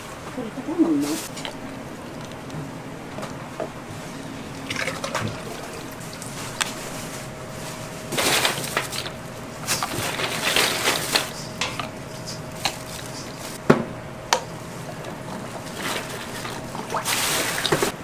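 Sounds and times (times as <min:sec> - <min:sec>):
plastic bottles clattering: 0:08.1 - 0:11.9.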